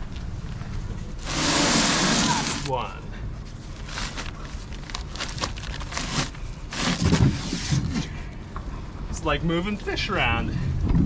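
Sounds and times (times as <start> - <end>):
paper bag scraping on plastic: 1.2 - 2.8, 3.7 - 8.0.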